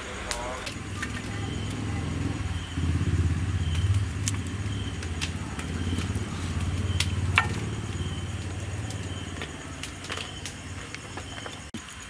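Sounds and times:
low engine-like rumble: 0.2 - 11.7
sharp clicks: 3.6 - 11.0.

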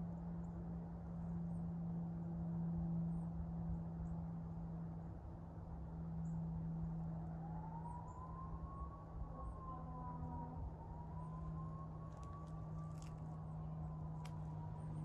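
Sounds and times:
steady low hum: 0.0 - 15.0
distant siren wailing: 6.4 - 15.0.

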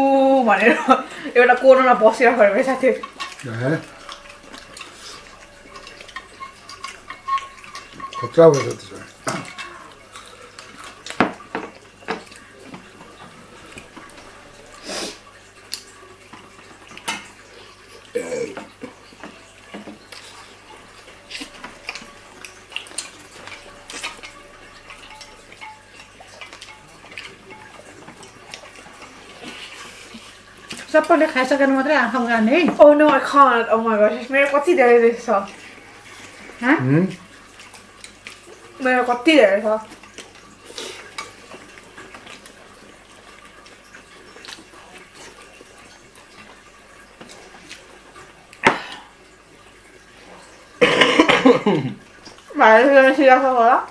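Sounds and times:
plates clattering: 1.8 - 14.8.

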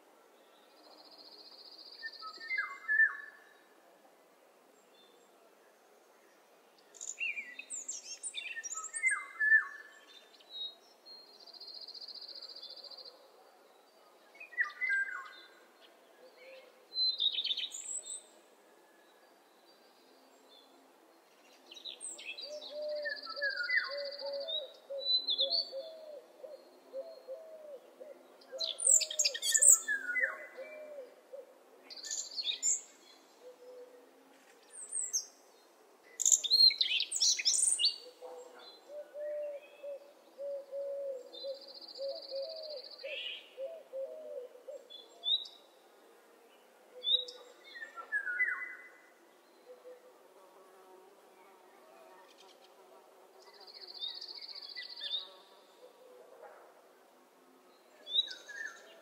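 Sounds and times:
birds singing and chirping: 21.7 - 31.1, 31.9 - 33.9, 36.2 - 45.6, 58.1 - 59.0.

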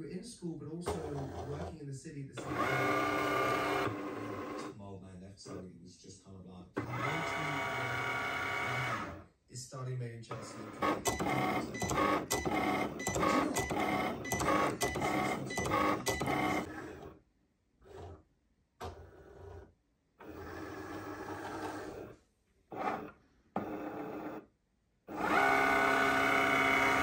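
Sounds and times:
cutting machine motors whirring: 0.8 - 1.8, 2.4 - 4.7, 6.8 - 9.2, 10.3 - 17.2, 18.8 - 24.4, 25.1 - 27.0.

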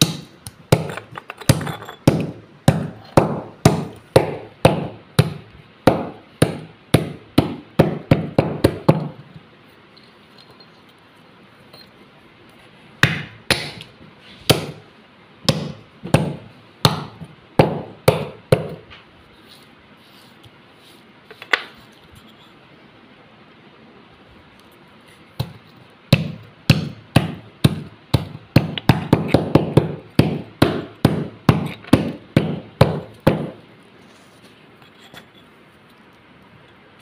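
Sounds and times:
stone crunching clay lamps: 0.0 - 4.4.

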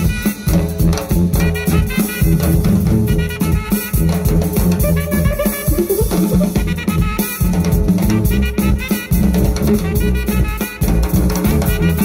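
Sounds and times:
busy drumming: 0.0 - 12.0
jazz band playing: 0.0 - 12.0
tuba bass line: 0.0 - 12.0
saxophone lines: 3.1 - 7.3.

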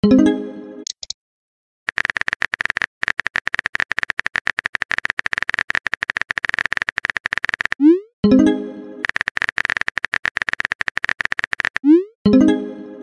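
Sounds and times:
phone keyboard typing clicks: 0.8 - 1.2, 1.9 - 7.8, 9.0 - 12.0.

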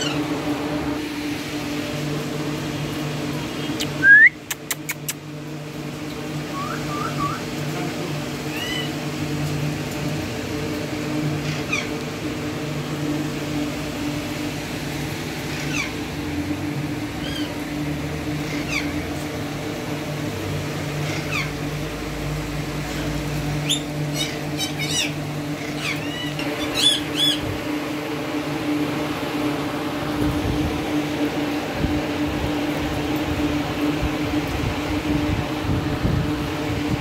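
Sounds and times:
parakeets calling: 0.0 - 1.0, 6.1 - 14.5, 15.1 - 29.5
steady low hum: 0.0 - 37.0.

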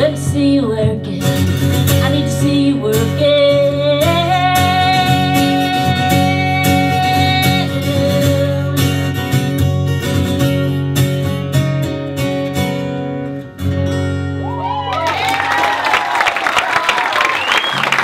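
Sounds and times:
acoustic guitar strumming: 0.0 - 14.9
audience whooping and applauding: 14.4 - 18.0.

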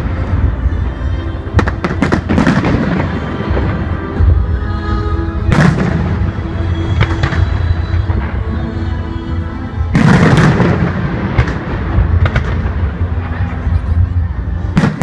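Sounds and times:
music with sustained tones: 0.0 - 15.0
fireworks bursting: 1.4 - 4.5, 5.4 - 9.0, 9.7 - 14.0.

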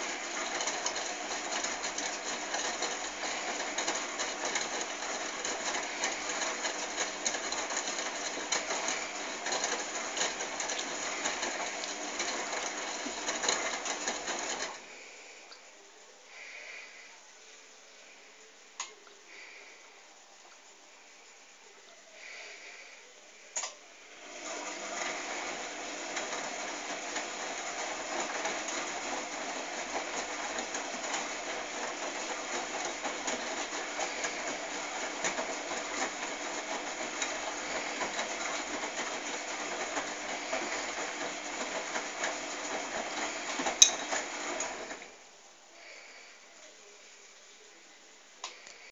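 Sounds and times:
laundry and water swishing in drum: 0.0 - 14.8, 24.2 - 45.2.

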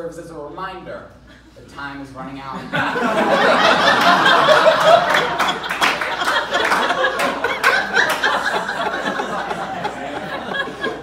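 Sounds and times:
audience laughing: 2.7 - 11.0
people clapping: 3.6 - 11.0.

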